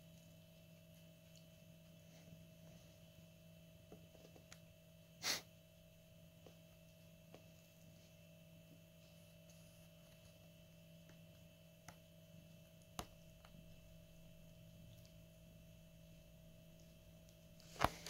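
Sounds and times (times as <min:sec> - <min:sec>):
steady low hum: 0:00.0 - 0:18.0
noisy puff of breath: 0:05.2 - 0:05.5.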